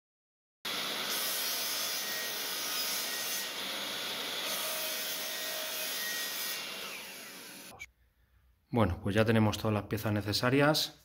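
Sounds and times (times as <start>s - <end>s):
miter saw cutting wood: 0.7s - 7.9s.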